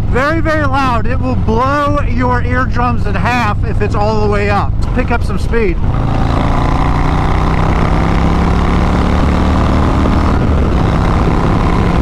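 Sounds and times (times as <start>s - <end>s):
motorcycle engine accelerating: 4.2s - 12.0s
wind rushing: 4.7s - 12.0s.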